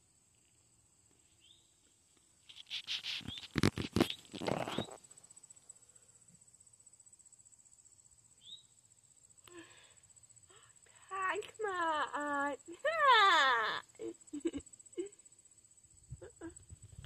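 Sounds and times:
insects trilling: 0.0 - 17.0
rustling with sharp knocks: 2.4 - 5.0.

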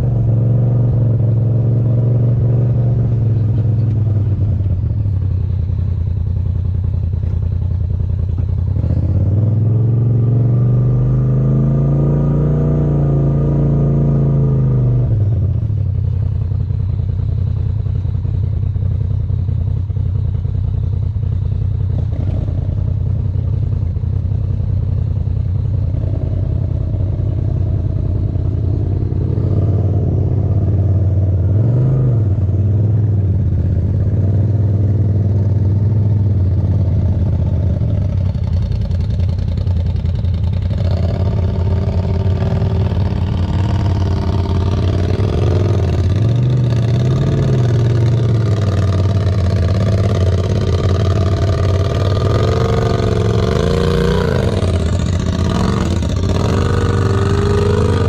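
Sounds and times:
utility vehicle engine running: 0.0 - 58.0.

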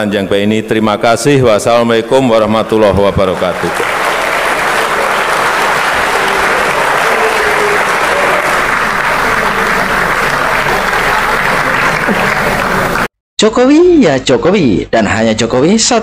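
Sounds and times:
large audience applauding: 2.9 - 13.1.

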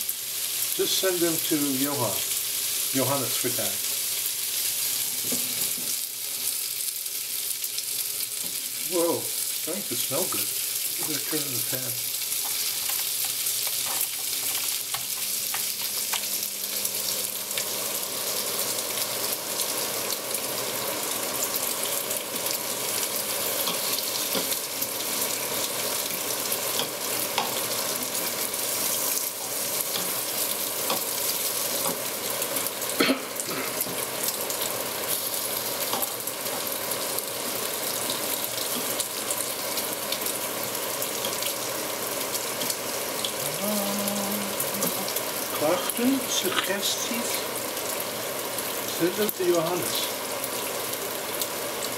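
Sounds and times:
bacon sizzling in a frying pan: 0.0 - 51.9.

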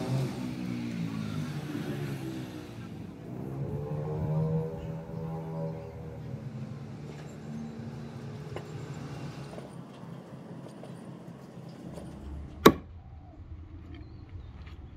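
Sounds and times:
axe chopping on wooden board: 12.6 - 12.9.

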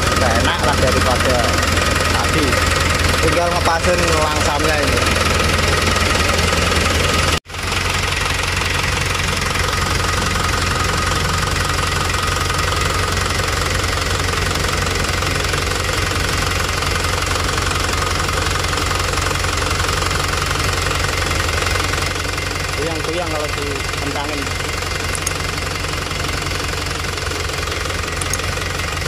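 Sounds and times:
diesel engine idling clatter: 0.0 - 29.0.

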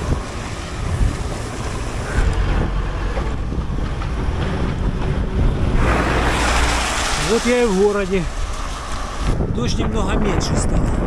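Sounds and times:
tyres hissing on wet road: 0.0 - 3.1, 5.6 - 9.4
wind buffeting microphone: 0.0 - 11.0.

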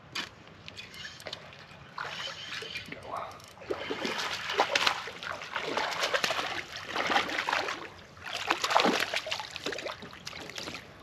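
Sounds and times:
fish splashing in water: 3.6 - 10.8.

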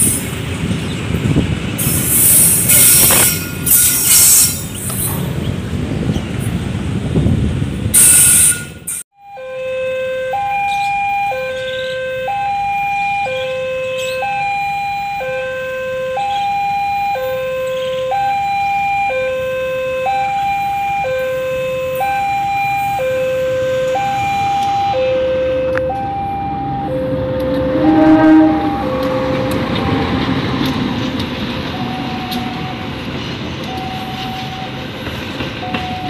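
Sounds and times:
two-tone level-crossing alarm: 8.0 - 30.2, 35.6 - 36.0
diesel locomotive running: 10.3 - 36.0.

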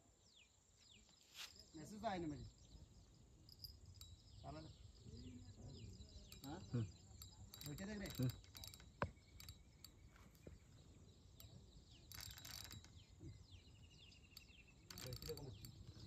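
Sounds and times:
short rustle: 1.2 - 1.7
fishing reel clicking: 6.2 - 10.3, 11.4 - 13.1, 14.1 - 16.0.

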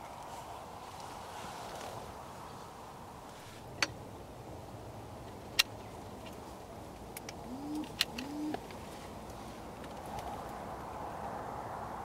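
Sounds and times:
low background noise: 0.0 - 12.0
wood pigeon cooing: 7.4 - 8.7.

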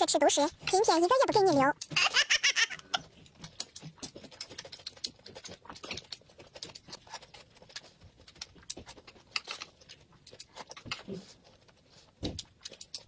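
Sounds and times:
chewing and slurping: 2.8 - 13.0.

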